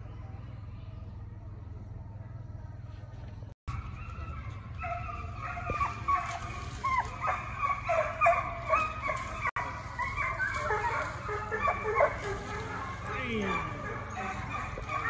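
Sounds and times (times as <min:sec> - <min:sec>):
steady low rumble: 0:00.0 - 0:15.0
hounds baying: 0:03.7 - 0:15.0.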